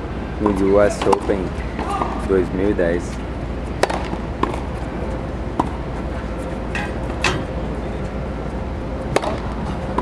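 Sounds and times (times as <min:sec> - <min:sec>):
low outdoor rumble: 0:00.0 - 0:10.0
tennis balls struck by racquets: 0:00.4 - 0:02.3, 0:03.7 - 0:07.5, 0:09.1 - 0:10.0.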